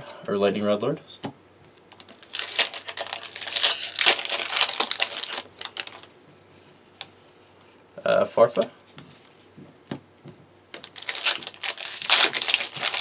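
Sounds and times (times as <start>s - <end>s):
foil wrapper crinkling: 2.0s - 6.1s, 10.8s - 13.0s.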